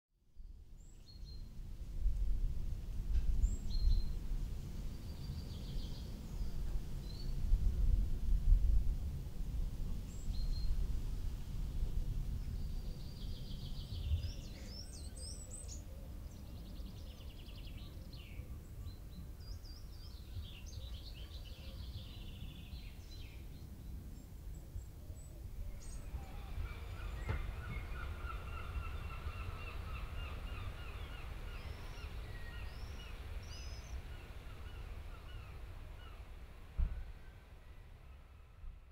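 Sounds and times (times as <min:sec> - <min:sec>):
birds singing and calling: 0:12.5 - 0:36.2.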